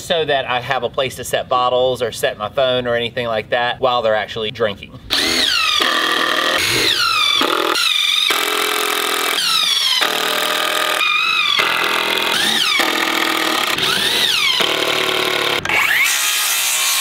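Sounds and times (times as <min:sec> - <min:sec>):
impact driver driving screws: 0:05.1 - 0:17.0.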